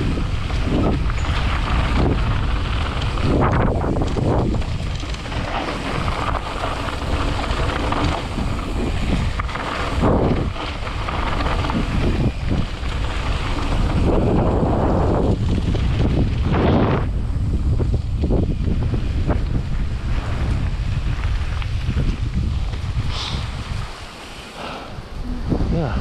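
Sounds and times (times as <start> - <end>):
tyres rolling on dirt: 0.0 - 25.2
wind buffeting microphone: 0.0 - 26.0.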